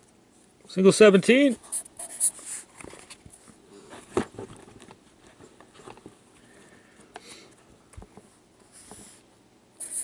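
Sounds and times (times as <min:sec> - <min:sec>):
marker scratching on paper: 0:01.6 - 0:02.7, 0:09.8 - 0:10.0
cards tapping and rustling: 0:02.8 - 0:06.2.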